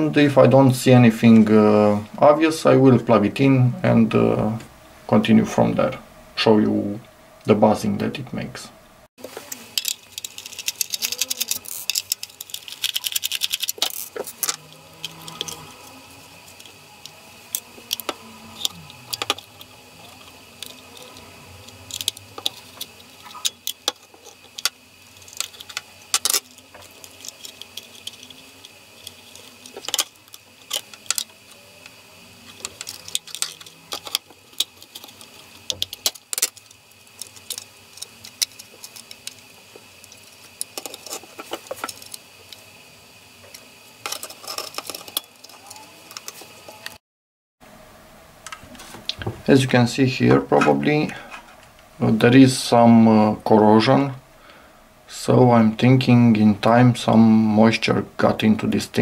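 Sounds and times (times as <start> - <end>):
plastic casing clicks and rattles: 9.7 - 14.6.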